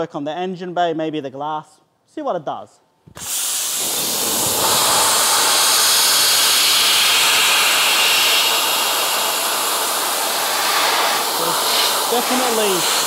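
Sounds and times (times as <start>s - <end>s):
dry ice blaster hissing: 3.1s - 13.0s.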